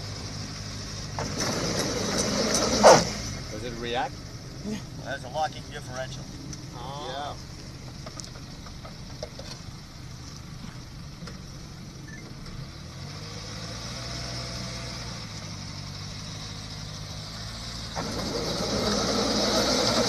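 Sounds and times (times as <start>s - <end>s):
car engine running: 0.0s - 13.0s, 15.3s - 20.0s.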